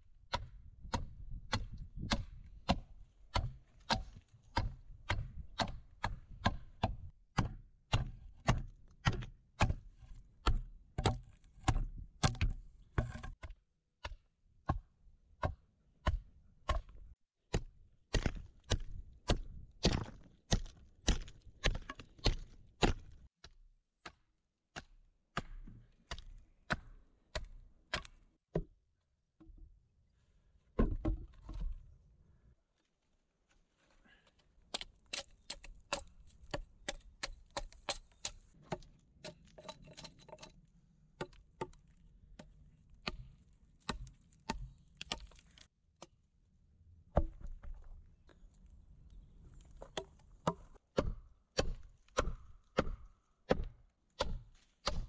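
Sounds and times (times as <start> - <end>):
hatchet chopping wood: 0.2 - 23.2, 24.0 - 28.8, 34.7 - 40.5, 41.2 - 46.2, 49.8 - 55.0.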